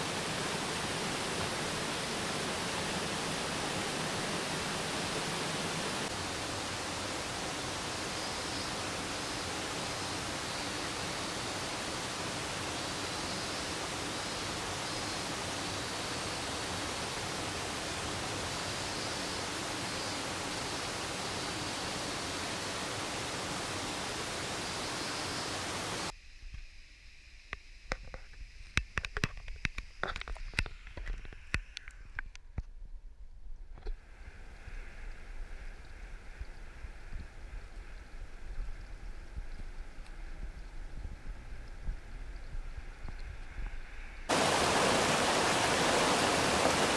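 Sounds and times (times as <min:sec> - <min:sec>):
stream water rushing: 0:00.0 - 0:26.1, 0:44.3 - 0:46.9
faint hiss: 0:00.0 - 0:32.2, 0:33.6 - 0:46.9.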